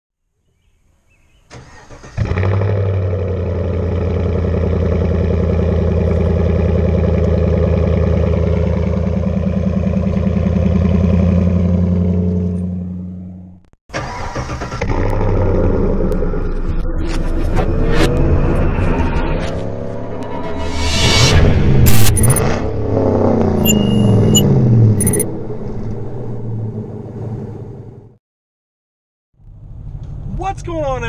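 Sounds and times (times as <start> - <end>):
engine cranking: 1.5 - 2.6, 13.9 - 15.3
engine idling with deep exhaust: 3.1 - 13.3.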